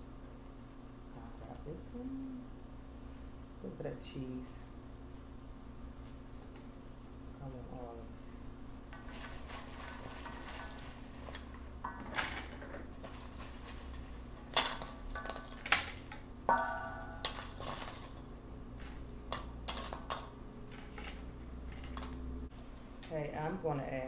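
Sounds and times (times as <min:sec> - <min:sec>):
metal bowl clanking: 0:08.9 - 0:22.2
metallic ring: 0:16.5 - 0:17.9.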